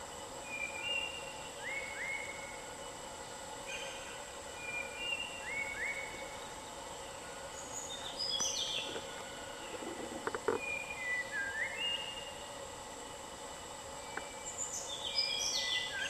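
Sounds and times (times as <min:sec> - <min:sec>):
high insect drone: 0:00.0 - 0:16.0
birds calling in whistled notes: 0:00.4 - 0:03.0, 0:03.7 - 0:09.0, 0:10.5 - 0:12.3, 0:14.0 - 0:16.0.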